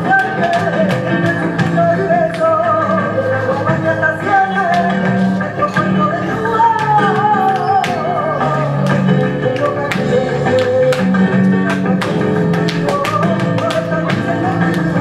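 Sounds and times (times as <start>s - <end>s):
guitar: 0.0s - 15.0s.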